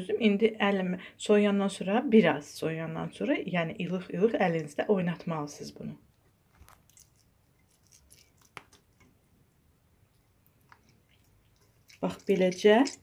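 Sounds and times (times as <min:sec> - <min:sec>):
wet squishes of cheese curd: 0:06.3 - 0:13.0.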